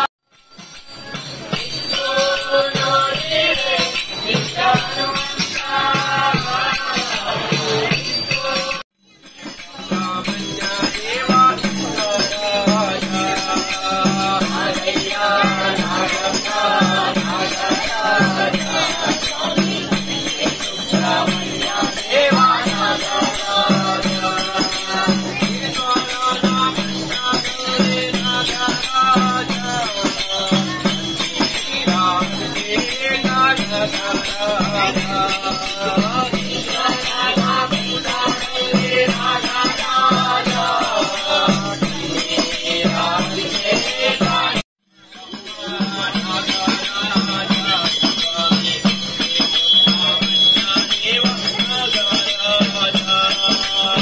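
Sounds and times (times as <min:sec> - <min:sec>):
jingling hand percussion: 0:00.0 - 0:54.0
group singing devotional song: 0:01.6 - 0:08.8, 0:09.4 - 0:54.0.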